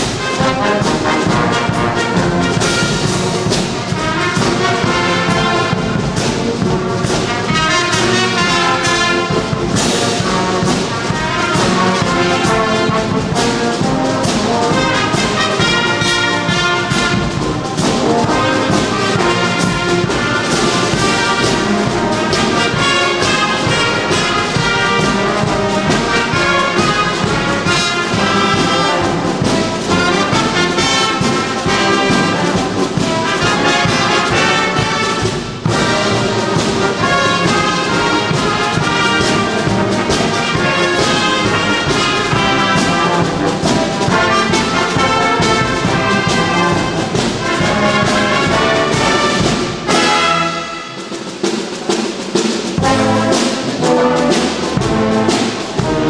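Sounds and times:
marching band playing: 0:00.0 - 0:56.0.

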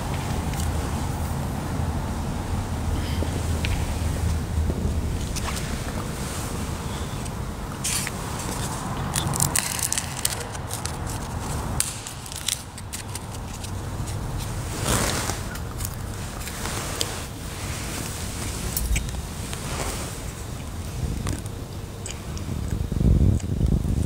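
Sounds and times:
steady low rumble: 0:00.0 - 0:24.0
scraping rustle: 0:03.0 - 0:21.5
handling clicks and crackles: 0:07.2 - 0:17.1.

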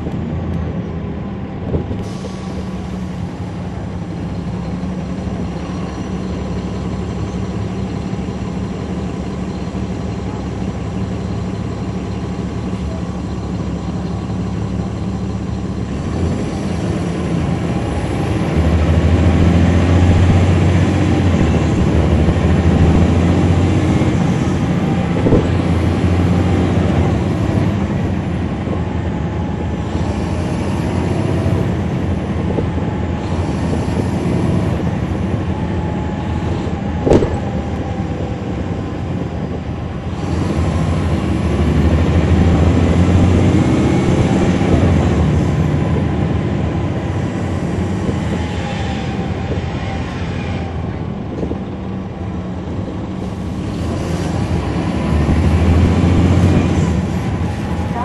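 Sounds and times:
bus diesel engine running: 0:00.0 - 0:58.0
short knock: 0:37.0 - 0:37.5.

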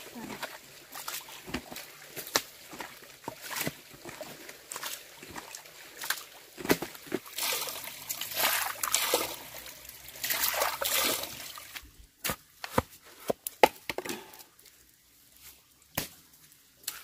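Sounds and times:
water splashing and sloshing: 0:00.0 - 0:13.6.

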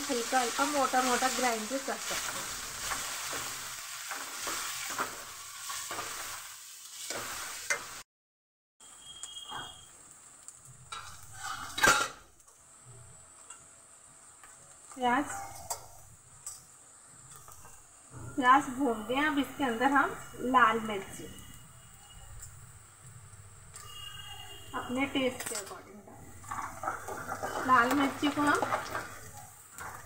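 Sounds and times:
onions sizzling in a pan: 0:00.0 - 0:08.1, 0:08.8 - 0:30.0
ladle scraping a pan: 0:10.9 - 0:12.2, 0:26.4 - 0:30.0.

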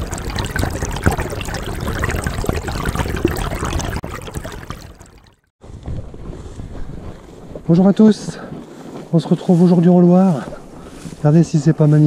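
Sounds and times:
river water trickling and splashing: 0:00.0 - 0:05.5.

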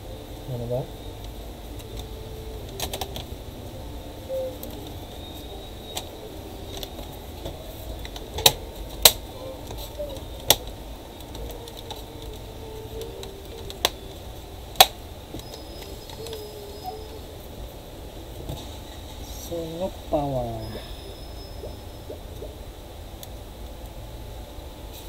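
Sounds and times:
plastic clips snapping: 0:06.7 - 0:14.1, 0:14.7 - 0:16.4.

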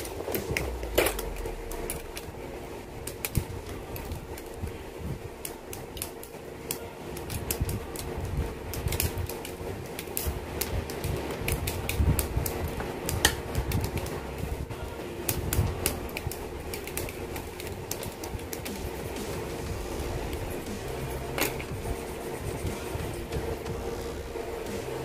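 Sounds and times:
steady hum: 0:00.0 - 0:25.0
cutters snipping plastic: 0:15.2 - 0:19.4.

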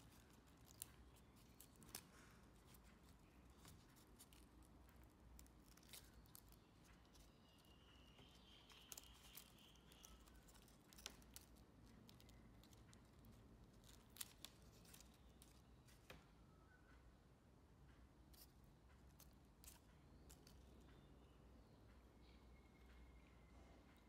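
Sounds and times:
crisp leaves crackling and rustling: 0:00.0 - 0:16.2.

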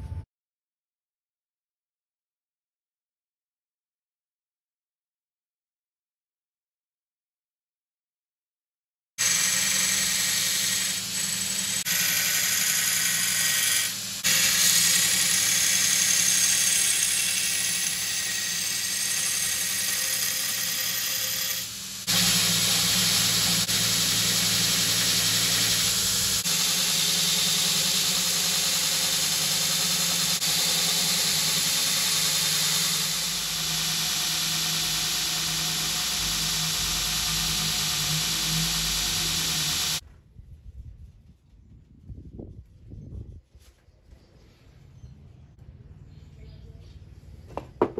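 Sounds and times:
belt grinder motor hum: 0:09.2 - 0:40.0.

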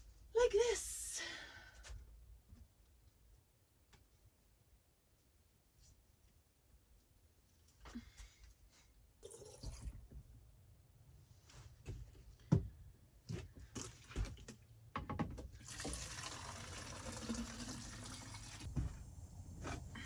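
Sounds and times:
water running into a bottle: 0:15.6 - 0:18.7.

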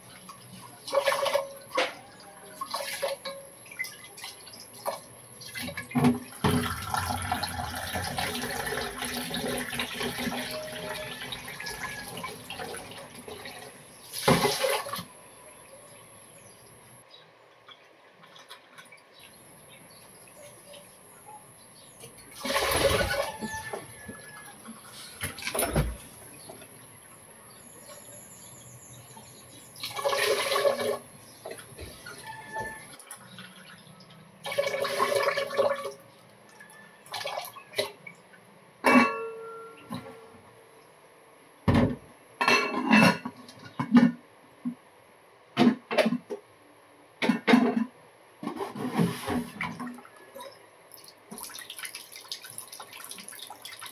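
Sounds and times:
water splashing and sloshing: 0:00.0 - 0:15.3, 0:17.7 - 0:21.1, 0:22.0 - 0:28.2, 0:29.2 - 0:39.2, 0:47.2 - 0:53.9.

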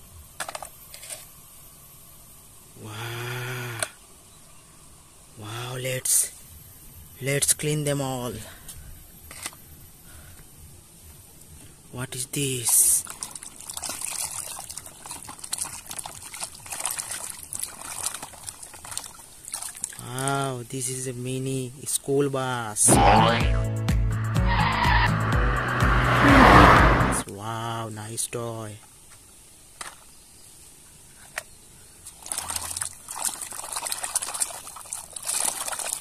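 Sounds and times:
water sloshing in a plastic basin: 0:12.4 - 0:20.4, 0:32.1 - 0:36.0
small splashes: 0:12.9 - 0:20.3, 0:32.1 - 0:36.0.

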